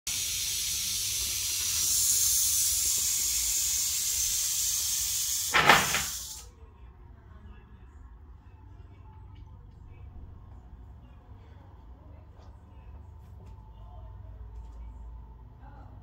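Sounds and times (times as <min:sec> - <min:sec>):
rattlesnake rattling: 0:00.1 - 0:06.4.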